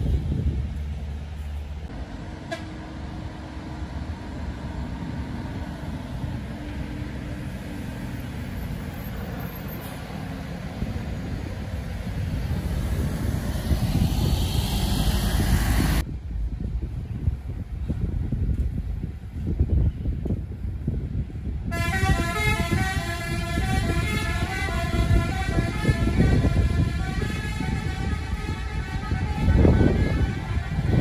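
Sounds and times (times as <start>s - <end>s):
coach engine passing: 0.0s - 16.0s.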